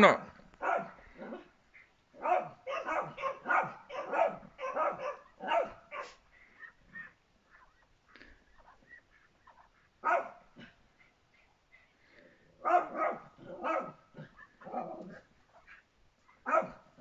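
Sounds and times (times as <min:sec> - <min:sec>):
small dogs barking: 0:00.2 - 0:01.5, 0:02.1 - 0:07.8, 0:09.2 - 0:10.8, 0:12.6 - 0:17.0.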